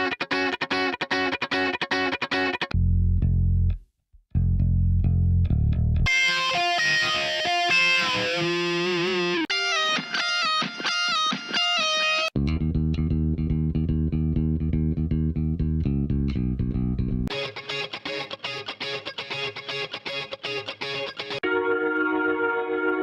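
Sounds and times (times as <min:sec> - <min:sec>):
choppy electric guitar: 0:00.0 - 0:02.8, 0:06.0 - 0:16.3, 0:17.0 - 0:21.5
bass guitar line: 0:02.6 - 0:09.4, 0:12.4 - 0:17.3
distorted electric guitar lead: 0:06.1 - 0:12.3, 0:17.3 - 0:23.0.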